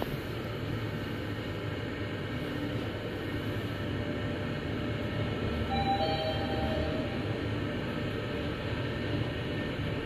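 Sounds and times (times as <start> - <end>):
hiss of air: 0.0 - 5.2
elevator low rumble: 0.0 - 10.0.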